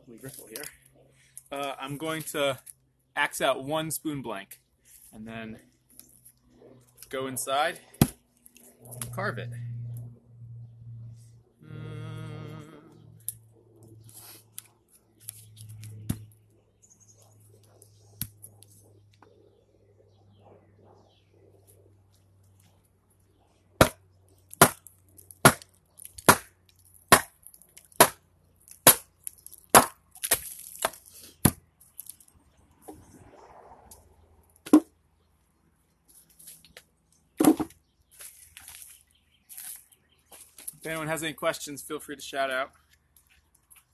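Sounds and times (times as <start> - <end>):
axe splitting log: 7.9 - 8.2, 23.8 - 24.8, 25.4 - 31.6.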